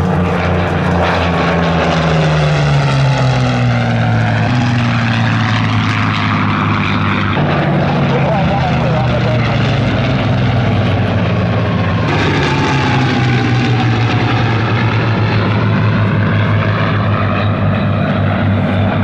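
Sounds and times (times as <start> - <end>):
aircraft engines droning overhead: 0.0 - 19.0.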